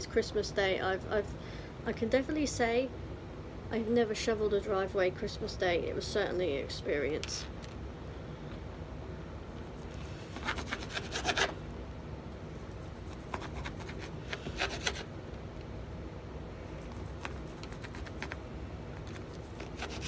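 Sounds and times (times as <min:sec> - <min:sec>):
knife sawing through ham: 0:09.8 - 0:11.6, 0:13.1 - 0:15.1, 0:19.5 - 0:20.0.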